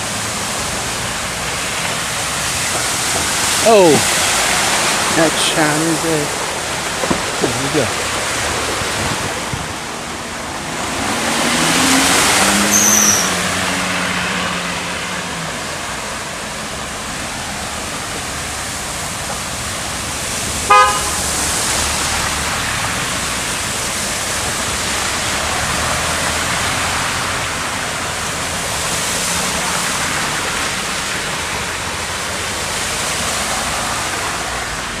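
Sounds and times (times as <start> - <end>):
vehicle passing loudly: 0.0 - 16.3
traffic on flooded street: 0.0 - 35.0
short car horn toot: 20.7 - 21.2.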